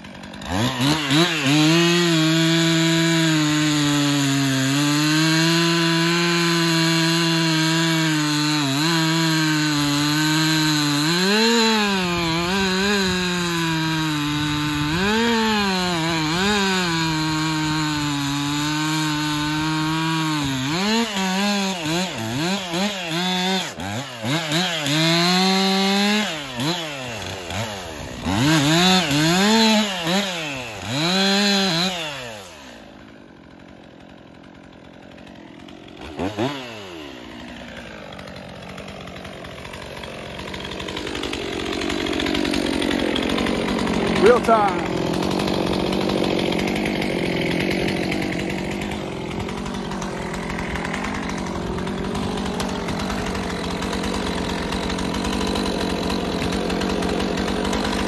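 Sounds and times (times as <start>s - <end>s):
chainsaw cutting log: 0.0s - 58.0s
chainsaw engine revving: 0.0s - 58.0s.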